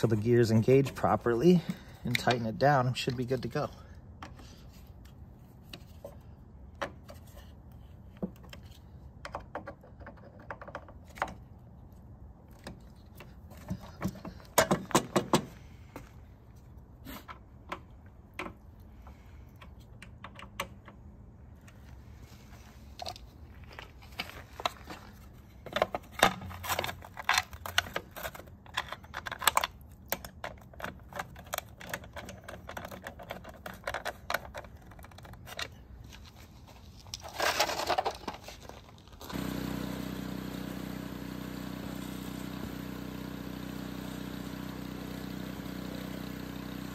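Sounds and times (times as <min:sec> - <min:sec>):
snowblower engine running: 0:39.3 - 0:46.9.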